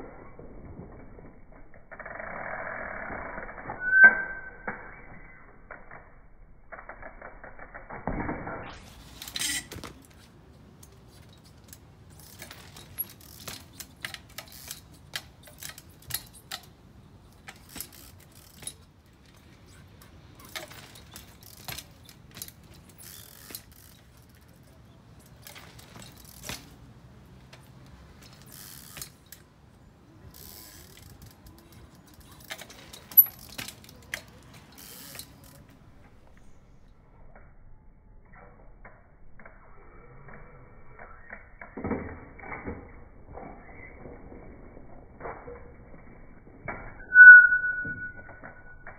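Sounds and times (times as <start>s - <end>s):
bicycle hub ratchet clicking: 12.1s - 16.8s, 17.4s - 18.8s, 19.6s - 24.5s, 25.3s - 26.6s, 28.2s - 29.4s, 30.3s - 36.4s.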